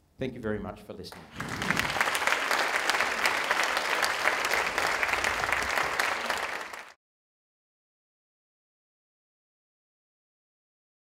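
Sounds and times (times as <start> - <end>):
audience applauding: 1.1 - 7.0.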